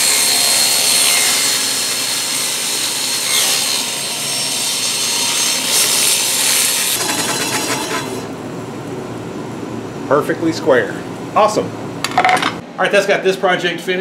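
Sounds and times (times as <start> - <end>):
table saw cutting plywood: 0.0 - 8.4.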